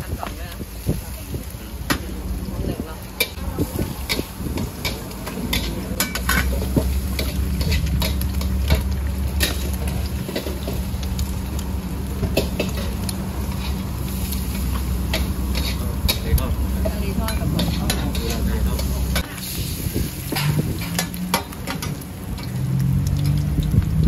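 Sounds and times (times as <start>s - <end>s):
food sizzling: 0.0s - 24.0s
metal spatula scraping a wok: 12.6s - 16.2s.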